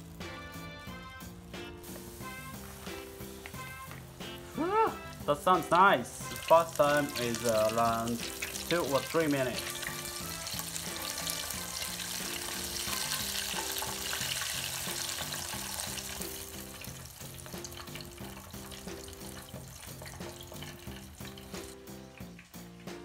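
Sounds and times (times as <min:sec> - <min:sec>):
background music: 0:00.0 - 0:23.0
chicken sizzling in hot oil: 0:00.0 - 0:23.0.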